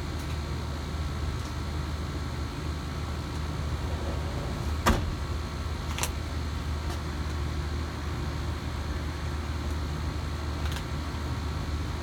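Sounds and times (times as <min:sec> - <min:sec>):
low outdoor rumble: 0:00.7 - 0:09.0.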